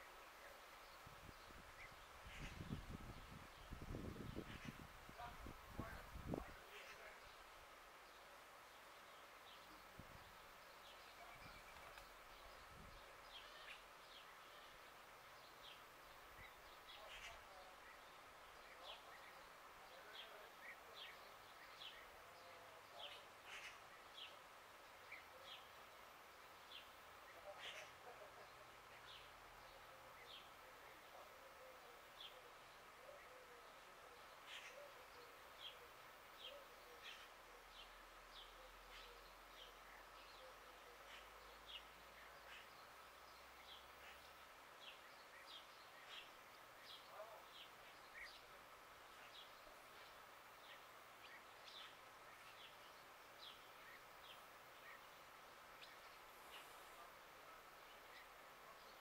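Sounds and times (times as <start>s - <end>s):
outdoor background hiss: 0.0s - 59.0s
small birds chirping: 0.0s - 59.0s.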